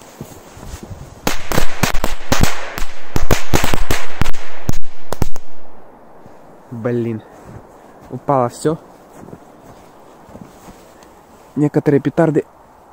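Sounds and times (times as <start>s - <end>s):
firecrackers banging: 1.3s - 5.4s
faint crackling: 6.2s - 11.7s.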